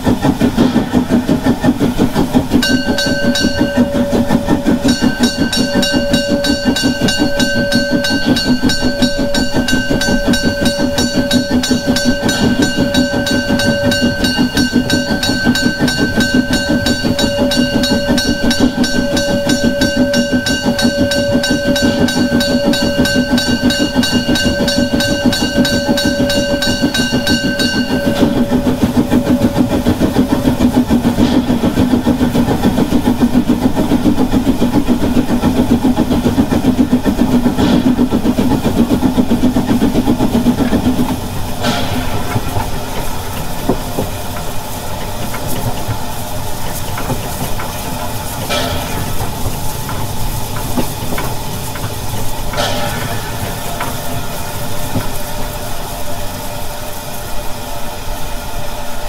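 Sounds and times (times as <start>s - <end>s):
steam locomotive chuffing: 0.0s - 59.0s
steady high tone: 2.6s - 31.9s.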